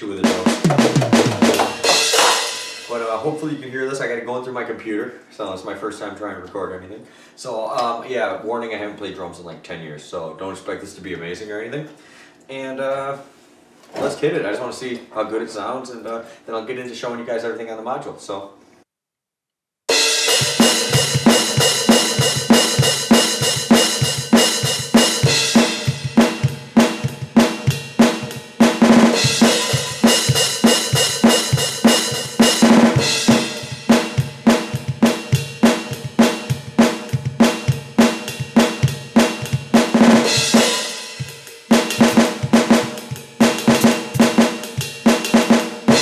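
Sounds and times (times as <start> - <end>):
electronic drum kit groove: 0.0 - 3.2, 19.9 - 46.0
cymbal crashes: 0.5 - 3.3, 19.9 - 46.0.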